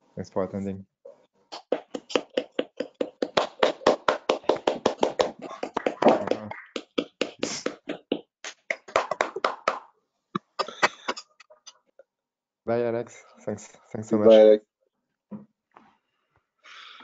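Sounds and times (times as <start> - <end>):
hands clapping: 1.5 - 11.3.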